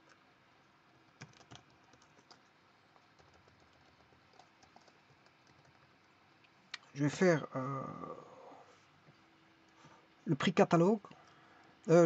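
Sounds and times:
computer keyboard typing: 0:01.1 - 0:05.9.

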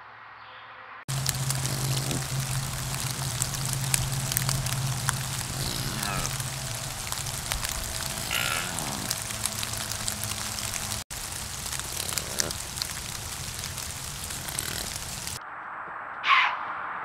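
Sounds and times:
low hum: 0:01.1 - 0:15.4
steady hiss: 0:01.1 - 0:15.4
deer bleating: 0:01.2 - 0:04.6, 0:05.2 - 0:06.5, 0:08.2 - 0:09.7.

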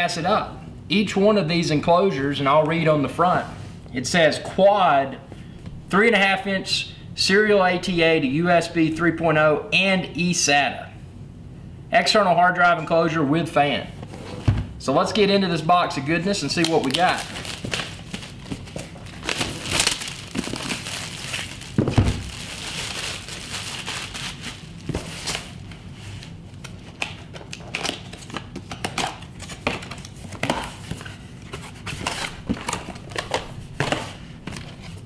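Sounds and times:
shrink-wrap crinkling and tearing: 0:16.4 - 0:30.4.

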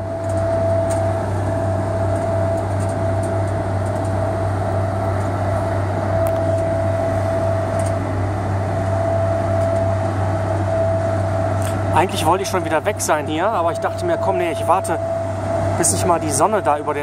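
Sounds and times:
ship diesel engine drone: 0:00.0 - 0:17.0
steady high whine: 0:00.0 - 0:17.0.

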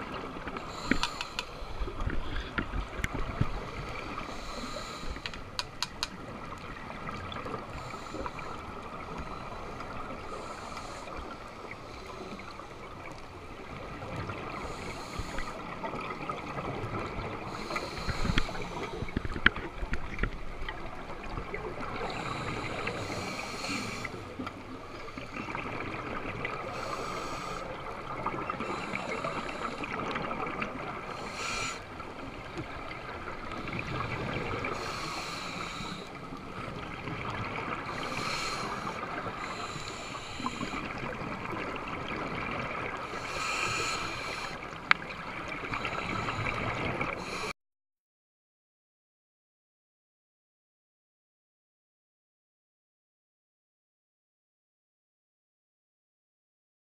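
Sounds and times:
steady underwater hiss: 0:00.0 - 0:47.5
sharp clicks: 0:00.9 - 0:01.5, 0:05.2 - 0:06.2.

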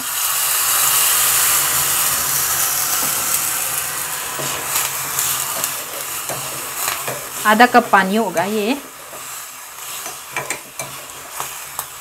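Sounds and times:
hot pan sizzling: 0:00.0 - 0:12.0
metal spoon stirring pan: 0:04.4 - 0:12.0.

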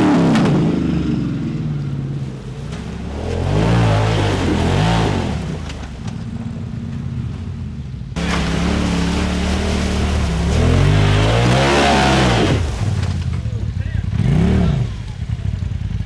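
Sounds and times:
engines revving: 0:00.0 - 0:07.5, 0:08.2 - 0:16.0
water splashing: 0:08.2 - 0:13.8.

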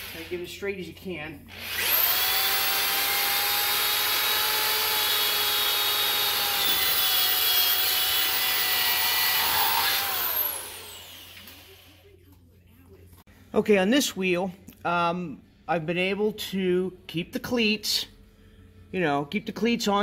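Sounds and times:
cordless drill boring: 0:00.0 - 0:00.4, 0:01.5 - 0:11.8.

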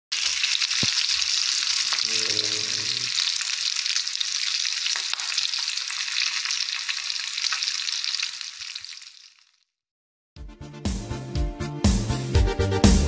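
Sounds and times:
meat sizzling in oil: 0:00.1 - 0:09.6.

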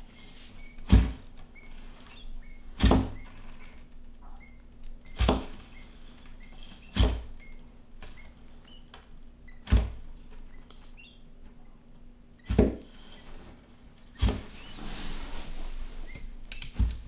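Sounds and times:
quail chick peeping: 0:01.5 - 0:03.7, 0:10.5 - 0:11.3.

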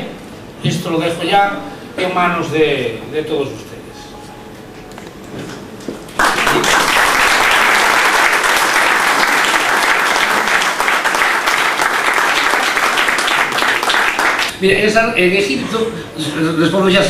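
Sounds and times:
audience applauding: 0:06.1 - 0:14.5.

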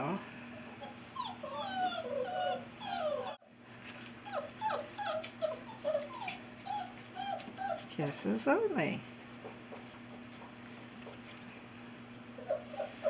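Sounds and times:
puppies whining: 0:00.4 - 0:08.0, 0:09.3 - 0:13.0.

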